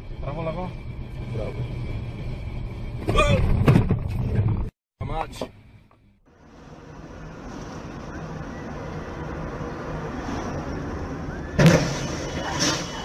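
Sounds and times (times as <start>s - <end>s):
car road and engine noise: 0.0s - 13.0s
loud car crash: 11.5s - 13.0s.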